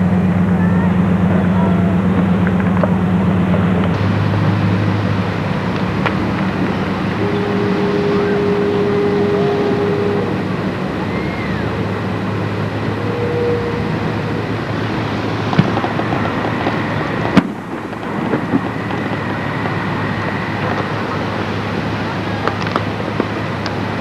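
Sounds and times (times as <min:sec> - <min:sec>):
low rumble of engines: 0:00.0 - 0:24.0
steady tone: 0:00.0 - 0:24.0
rising-and-falling whistle: 0:07.2 - 0:10.4, 0:11.0 - 0:12.0, 0:12.8 - 0:14.4.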